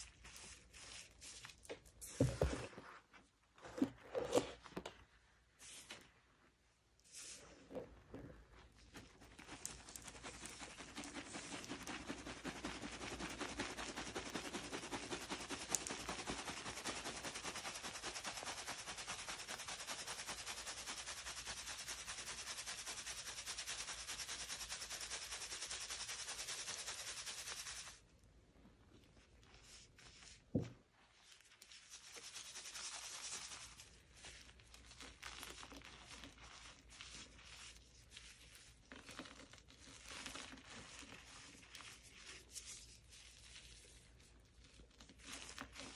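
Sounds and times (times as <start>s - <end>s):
chalk crumbling by hand: 0.0s - 2.2s
chalk rattling in mesh strainer: 9.0s - 28.0s.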